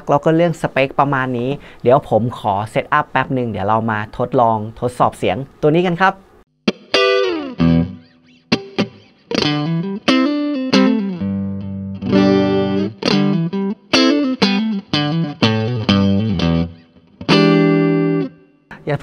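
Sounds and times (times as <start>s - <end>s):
electric guitar riff: 6.7s - 18.8s.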